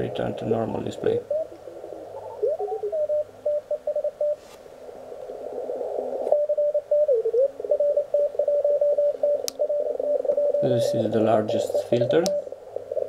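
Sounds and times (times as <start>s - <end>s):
radio band hiss: 0.0s - 3.2s, 9.8s - 13.0s
morse code beeps: 2.2s - 4.4s, 6.4s - 11.0s.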